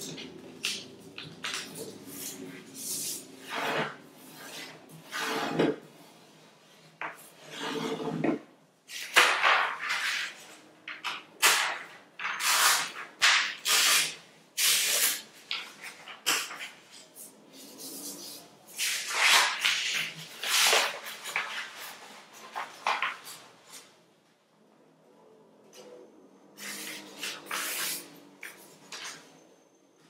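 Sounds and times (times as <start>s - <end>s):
paper being folded by hand: 0.0s - 5.2s, 8.9s - 23.9s, 26.6s - 29.3s
paper rubbing on tabletop: 17.6s - 23.2s, 26.6s - 28.8s.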